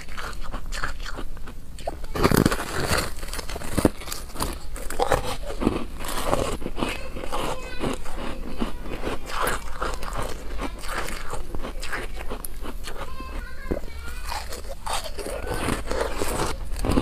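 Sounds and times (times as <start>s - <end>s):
crunchy chewing: 0.0s - 17.0s
bite snapping frozen ice: 1.8s - 7.5s, 9.2s - 13.0s, 14.3s - 17.0s.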